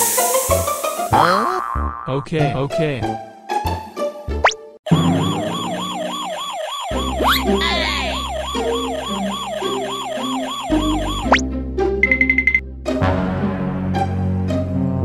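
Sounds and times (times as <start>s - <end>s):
background music: 0.0s - 15.0s
rapid high beeps: 4.9s - 11.4s, 12.0s - 12.6s
warbling electronic alarm: 4.9s - 11.4s.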